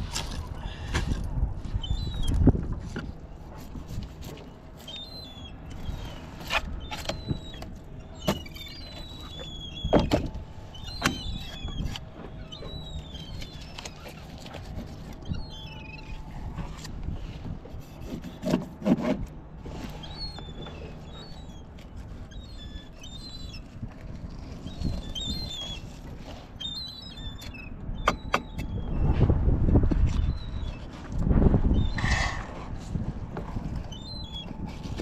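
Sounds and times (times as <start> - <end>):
steady low hum: 0.0 - 18.4
small birds chirping: 1.8 - 2.4, 4.8 - 16.3, 19.9 - 29.2, 33.8 - 34.6.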